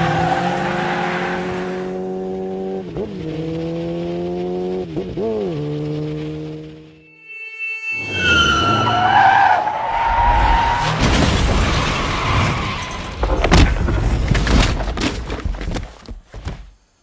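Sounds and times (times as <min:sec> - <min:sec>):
tyres screeching: 0:07.3 - 0:13.4
crash with breaking glass: 0:10.2 - 0:14.8
debris clattering: 0:10.8 - 0:16.2.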